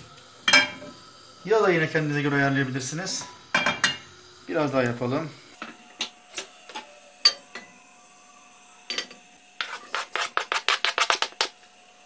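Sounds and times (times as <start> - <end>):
cutting board scraping pan rim: 9.6 - 11.4.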